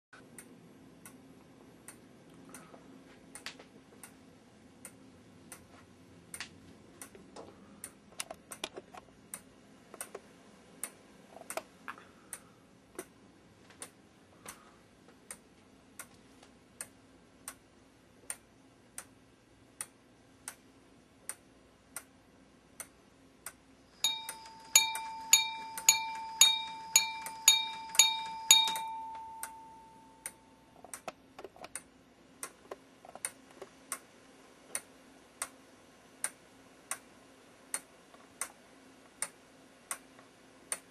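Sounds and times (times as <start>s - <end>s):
clock ticking: 0.2s - 4.2s, 16.8s - 34.1s, 36.2s - 37.1s, 37.7s - 40.9s
hammer striking metal chime: 24.0s - 30.6s.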